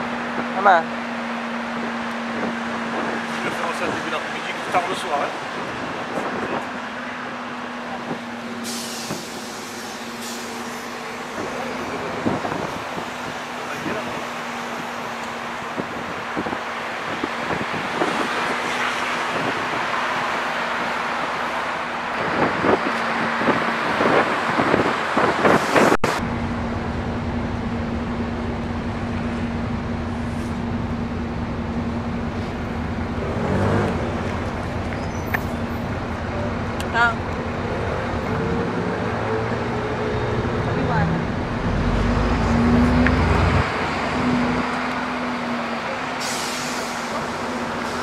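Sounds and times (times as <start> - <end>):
bus engine hum: 0.0 - 48.0
traffic: 0.0 - 48.0
wind noise: 11.3 - 27.7.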